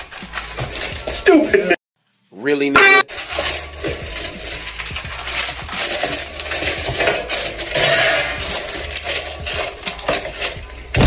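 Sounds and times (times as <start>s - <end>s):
small objects clattering: 0.0s - 1.8s, 3.1s - 11.0s
scraping rustle: 3.1s - 11.0s.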